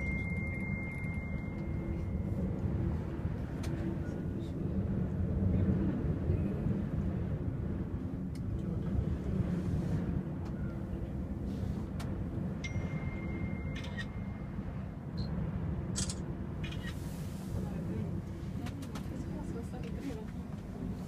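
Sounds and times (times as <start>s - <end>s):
cable car cabin rumble: 0.0s - 21.0s.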